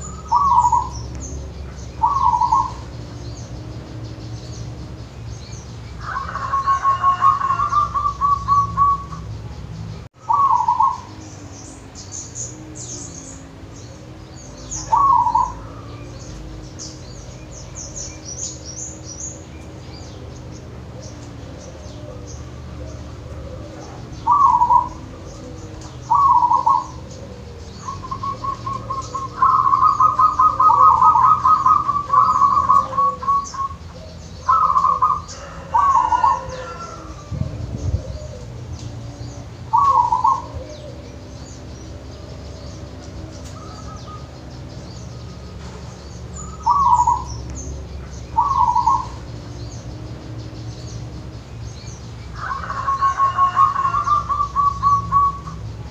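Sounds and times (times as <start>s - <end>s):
dove cooing: 0.0s - 55.9s.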